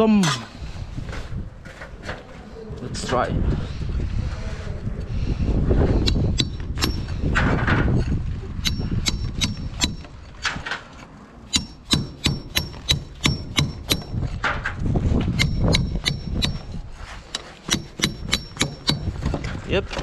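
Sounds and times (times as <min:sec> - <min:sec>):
hammer striking brick: 0:06.0 - 0:07.3, 0:08.6 - 0:10.2, 0:11.5 - 0:14.2, 0:15.3 - 0:16.7, 0:17.3 - 0:19.4.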